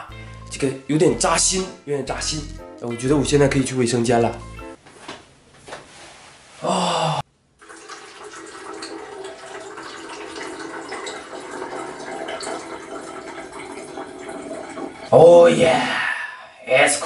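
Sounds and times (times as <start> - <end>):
man urinating: 6.6 - 16.0.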